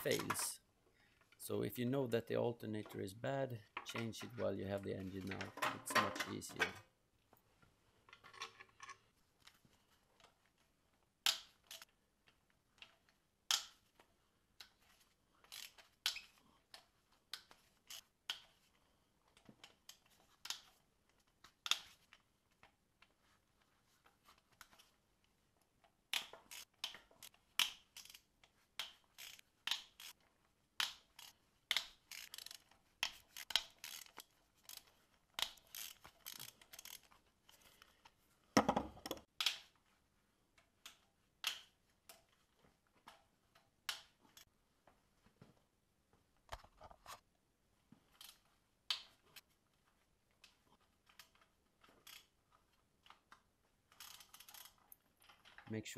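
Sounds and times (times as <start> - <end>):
hand ratchet clicking: 15.4 - 16.4, 26.1 - 30.2, 30.8 - 37.7, 53.9 - 55.4.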